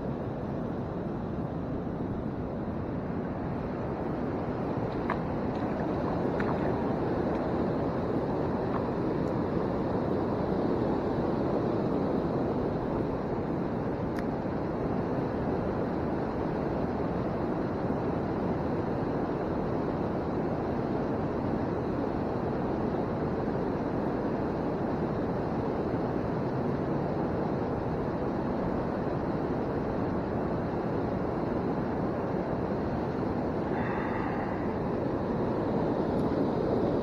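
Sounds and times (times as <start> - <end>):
river water rushing: 32.5 - 37.0.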